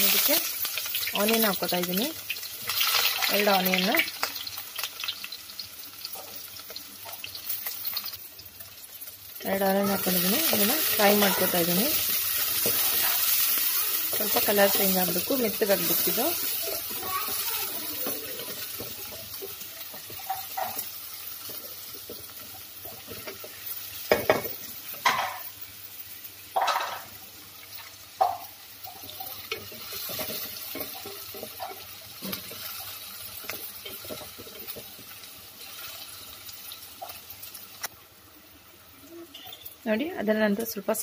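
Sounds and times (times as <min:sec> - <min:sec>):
onions sizzling in a pan: 0:00.0 - 0:41.0
wooden spatula scraping a pan: 0:09.9 - 0:20.9.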